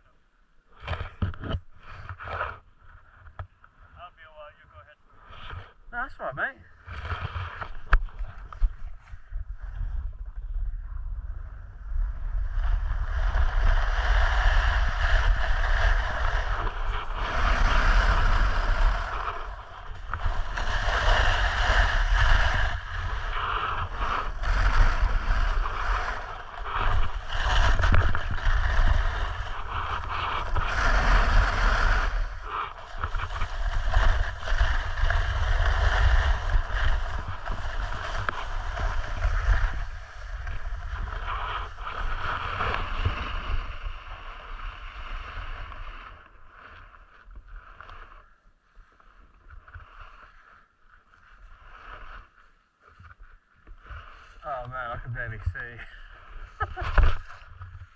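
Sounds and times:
snowboard scraping over snow: 5.4s - 57.9s
wind rumble on microphone: 6.7s - 48.3s.

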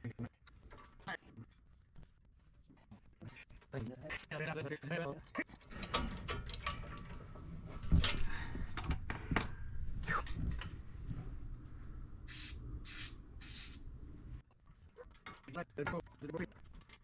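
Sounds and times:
metal tools clinking: 5.2s - 10.8s
short hissing bursts: 12.3s - 13.8s.

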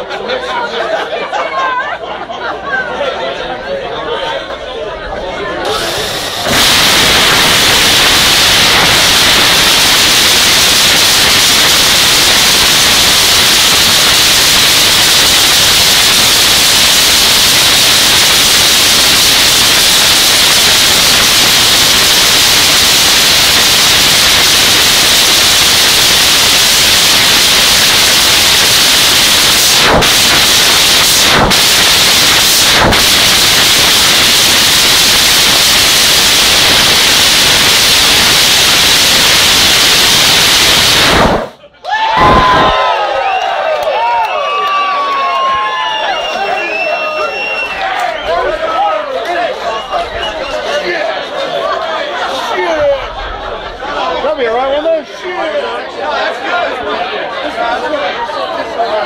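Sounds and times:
loud dragster engine running: 5.7s - 41.6s.

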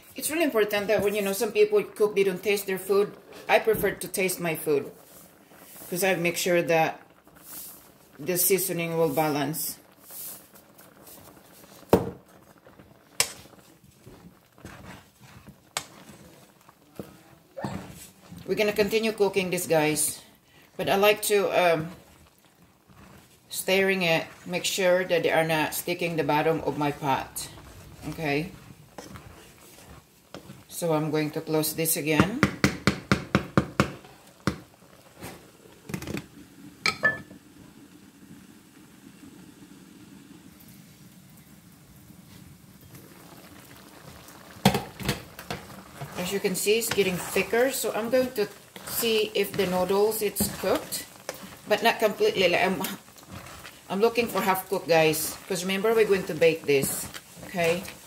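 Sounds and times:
wooden spoon stirring thick mixture: 0.0s - 36.4s, 42.9s - 58.0s
sauce simmering: 0.0s - 58.0s
wooden spatula knocking skillet: 32.0s - 34.7s, 44.6s - 58.0s
glass pan lid clinking: 36.9s - 37.3s.

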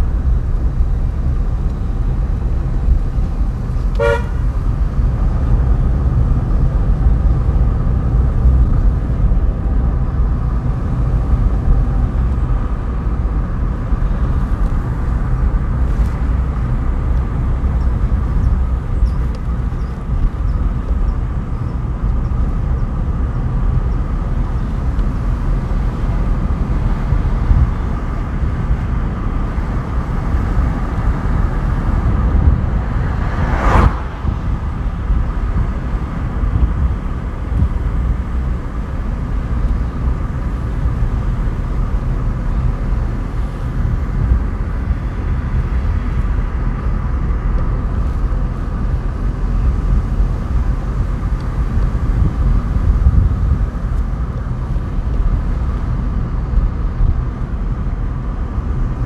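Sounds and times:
car engine and tyre rumble: 0.0s - 59.0s.

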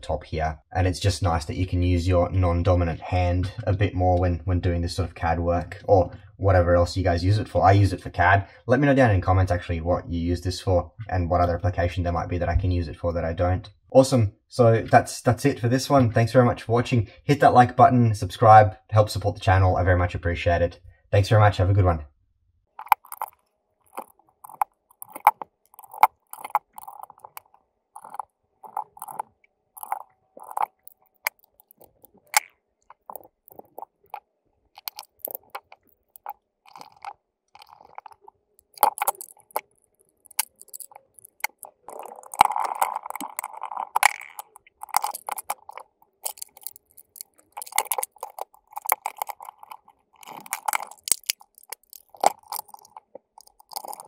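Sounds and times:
plastic parts clicking and tapping: 40.3s - 54.0s.

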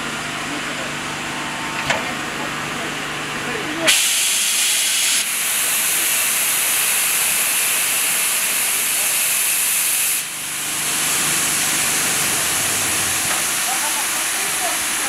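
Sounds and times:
steam locomotive venting steam: 3.9s - 15.0s.

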